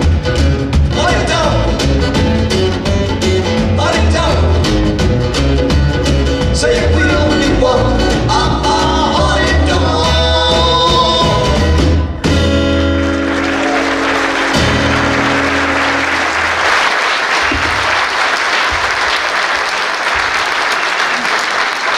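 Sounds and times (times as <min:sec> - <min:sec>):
rockabilly band playing: 0:00.0 - 0:21.8
people singing: 0:06.5 - 0:12.0
audience applause: 0:12.9 - 0:21.9.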